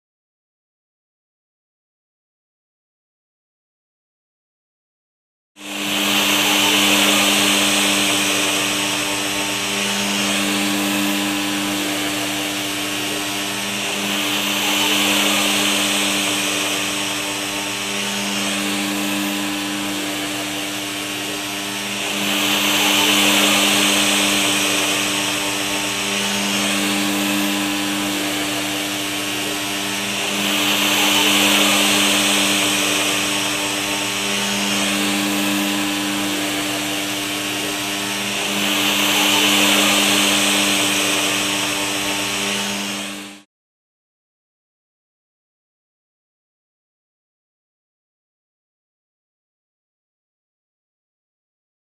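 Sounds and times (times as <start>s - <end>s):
vacuum motor hum: 5.6s - 43.5s
rushing suction air: 5.7s - 43.4s.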